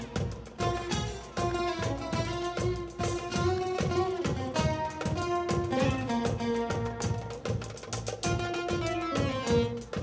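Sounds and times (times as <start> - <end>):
bass: 0.0 - 10.0
drum kit strokes: 0.0 - 10.0
electric guitar: 0.0 - 10.0.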